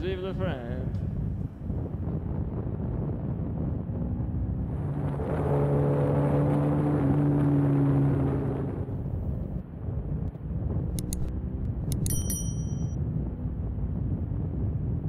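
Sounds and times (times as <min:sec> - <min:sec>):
low wind rumble: 0:00.0 - 0:15.0
motorcycle engine running: 0:11.0 - 0:13.0.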